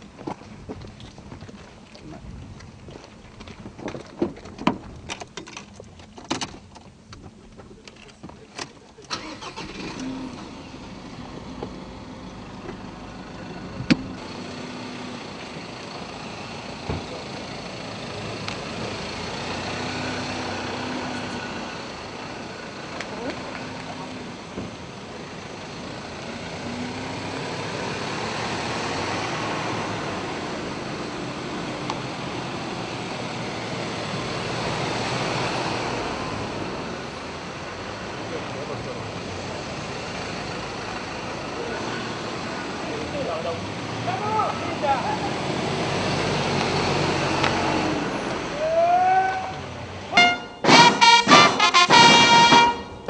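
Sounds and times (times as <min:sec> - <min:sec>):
pickup engine idling: 0:06.8 - 0:19.6
crowd din: 0:48.4 - 0:53.0.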